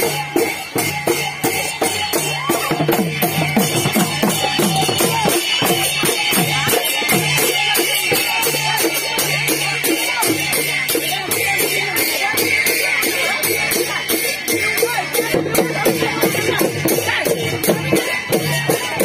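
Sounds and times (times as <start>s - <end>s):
barrel drums beaten fast: 0.0s - 19.0s.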